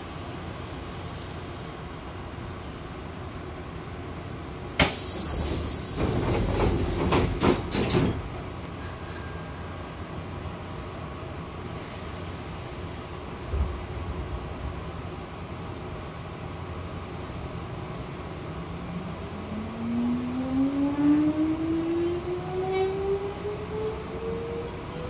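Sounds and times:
train low hum: 0:00.0 - 0:25.0
loud air hiss: 0:04.8 - 0:07.6, 0:11.7 - 0:13.4
train doors sliding shut: 0:04.8 - 0:09.4, 0:11.7 - 0:13.9, 0:21.8 - 0:23.0.

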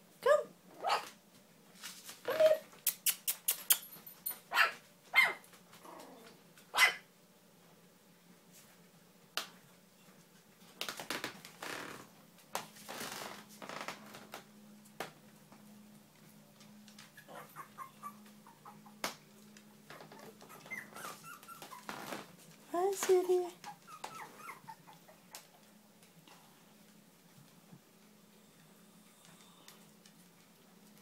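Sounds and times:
rustling: 0:01.7 - 0:02.5, 0:19.3 - 0:24.7
puppies yapping: 0:17.0 - 0:19.0, 0:19.8 - 0:22.2, 0:23.6 - 0:25.6.

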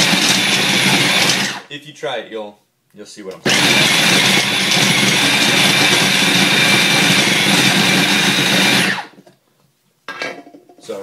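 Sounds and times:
food processor motor chopping: 0:00.0 - 0:01.6, 0:03.4 - 0:09.2.

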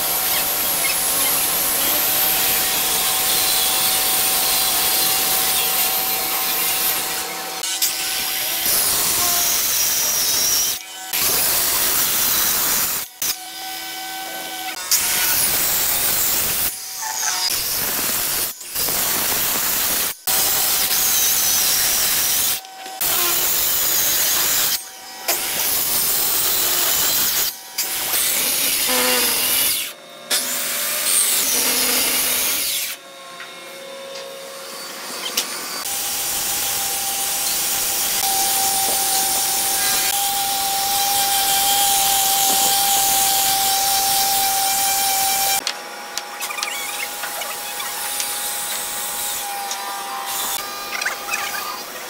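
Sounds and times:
circular saw cutting wood: 0:00.0 - 0:52.0
orbital sander whine: 0:33.5 - 0:52.0.

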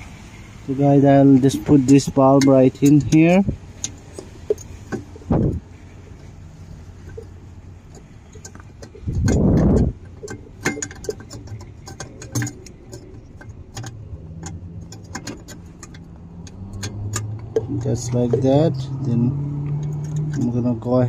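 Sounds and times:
small metallic clicks and taps: 0:01.4 - 0:05.6, 0:07.0 - 0:18.8, 0:19.6 - 0:21.0
rumbling thump of handling: 0:03.0 - 0:05.8, 0:07.9 - 0:12.7.

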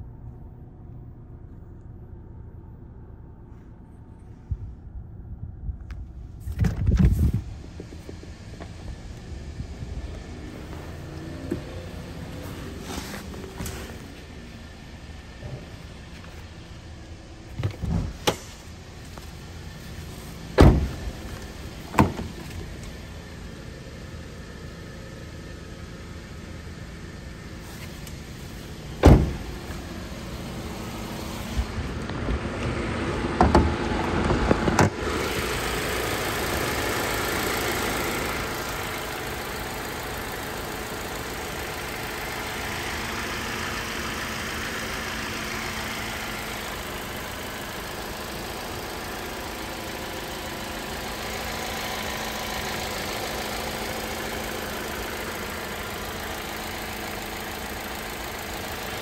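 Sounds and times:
car engine idling: 0:00.0 - 0:59.0
car door and latch clunks: 0:10.7 - 0:11.9, 0:17.5 - 0:18.7, 0:20.5 - 0:22.8, 0:28.9 - 0:29.9, 0:33.4 - 0:35.0.

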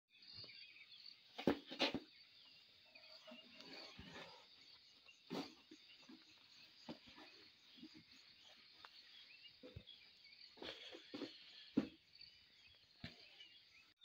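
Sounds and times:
insects chirping: 0:00.1 - 0:14.0.

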